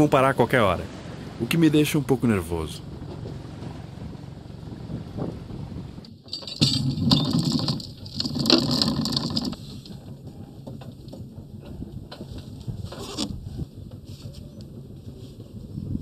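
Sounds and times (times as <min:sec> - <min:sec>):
anchor chain rattling: 0:06.0 - 0:13.4
clinks and knocks on deck: 0:06.3 - 0:09.6.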